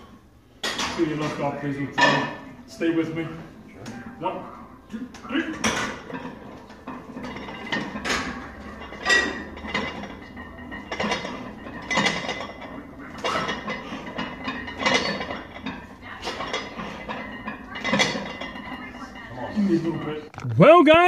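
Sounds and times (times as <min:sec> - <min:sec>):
weight plates clinking on barbell: 0:05.1 - 0:20.2.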